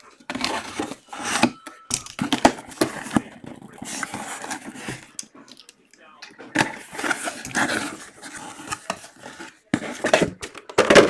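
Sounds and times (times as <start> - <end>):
cardboard scraping and rustling: 0.2 - 1.6, 2.2 - 5.1, 6.5 - 11.0.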